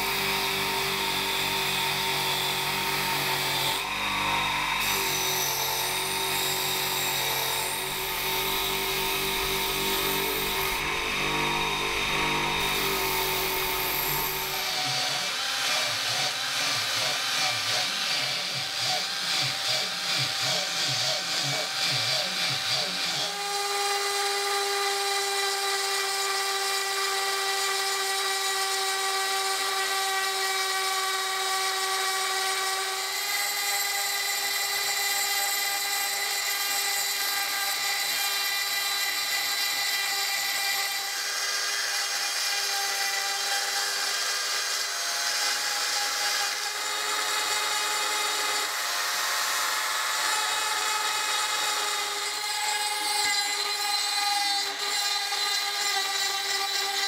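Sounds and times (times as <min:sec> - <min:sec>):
rotary tool grinding metal: 0:00.0 - 0:57.0.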